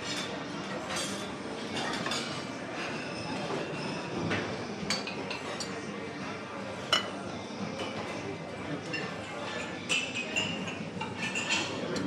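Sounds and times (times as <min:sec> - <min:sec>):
crockery and cutlery clinking: 0:00.0 - 0:12.0.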